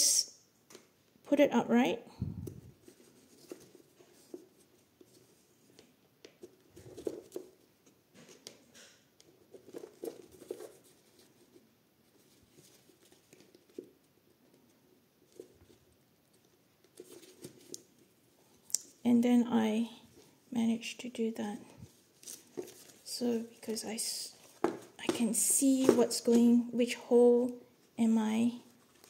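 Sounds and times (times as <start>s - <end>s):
paper and cardboard rustling: 2.6s - 18.3s, 21.8s - 26.6s.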